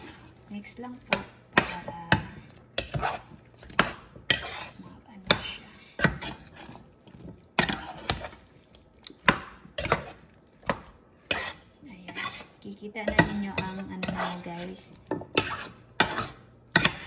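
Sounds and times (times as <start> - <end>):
spoon knocking and scraping pan: 0.0 - 8.4, 9.2 - 17.0
wet shuffling of food: 6.2 - 11.6.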